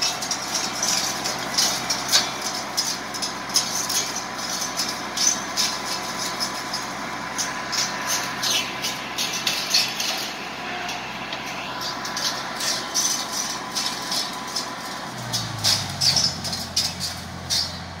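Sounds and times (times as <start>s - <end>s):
tractor diesel engine running: 0.0s - 18.0s
hedge cutter cracking branches: 11.4s - 18.0s.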